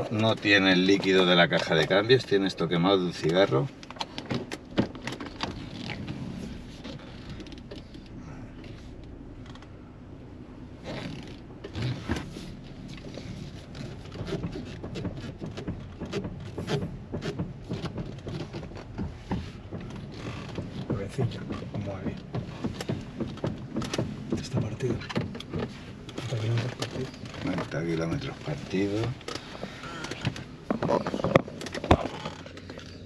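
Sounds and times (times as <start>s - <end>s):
clicks knocks and creaks: 3.1s - 6.2s, 6.8s - 9.8s, 12.9s - 33.0s.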